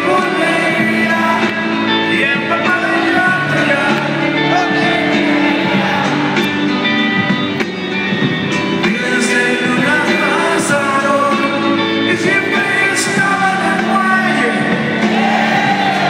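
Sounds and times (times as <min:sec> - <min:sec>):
person singing: 0:00.0 - 0:06.8, 0:08.8 - 0:16.0
live rock band: 0:00.0 - 0:16.0.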